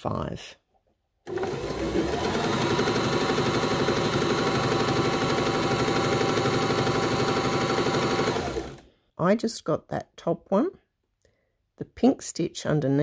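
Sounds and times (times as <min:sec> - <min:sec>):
sewing machine stitching: 0:01.3 - 0:08.8.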